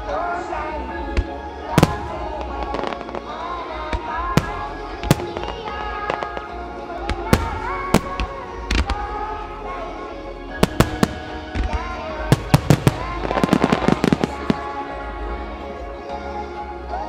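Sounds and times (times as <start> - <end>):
music: 0.0 - 17.0
firework shells bursting: 10.6 - 14.7.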